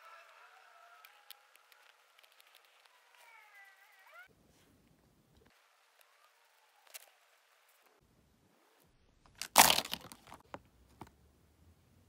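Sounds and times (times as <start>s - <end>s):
small clicks: 0.2s - 3.5s.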